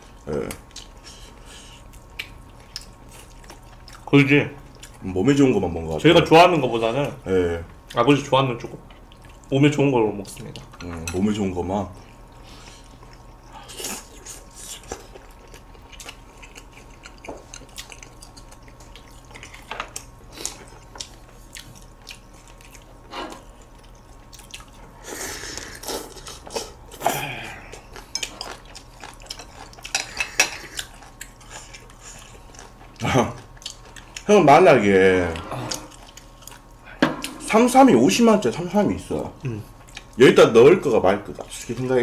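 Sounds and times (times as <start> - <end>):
chewing: 0.2 - 4.1, 4.7 - 5.0, 8.9 - 9.5, 12.0 - 26.8, 27.5 - 34.3, 35.2 - 36.8, 39.3 - 40.2.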